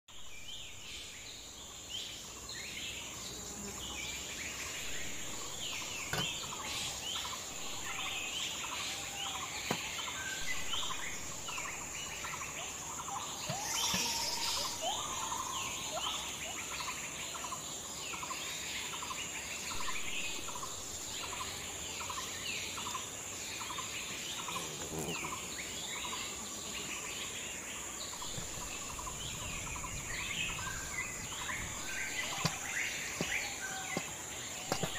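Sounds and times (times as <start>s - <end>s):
forest birds chirping: 0.1s - 34.9s
high-pitched insect drone: 3.2s - 17.5s.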